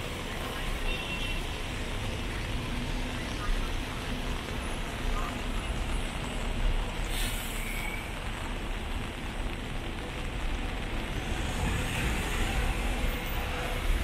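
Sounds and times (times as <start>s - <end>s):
car tyres on wet road: 0.0s - 14.0s
rain hissing: 0.0s - 14.0s
low rumble of passing traffic: 7.8s - 14.0s.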